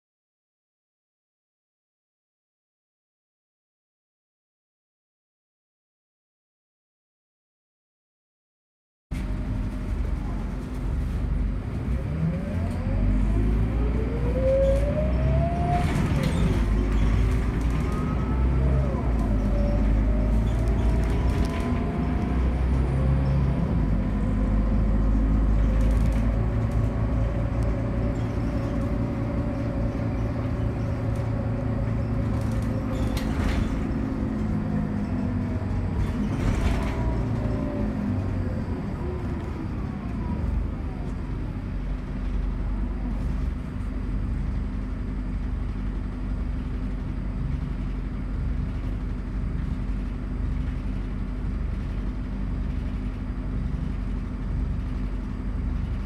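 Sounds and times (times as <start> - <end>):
engine low rumble: 9.1 - 56.0.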